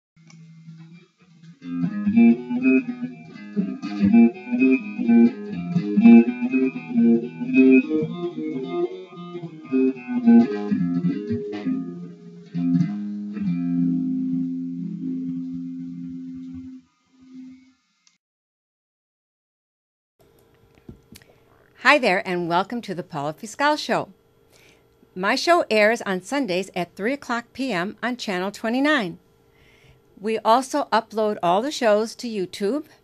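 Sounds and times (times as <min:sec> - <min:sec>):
plucked guitar melody: 0:00.7 - 0:16.8.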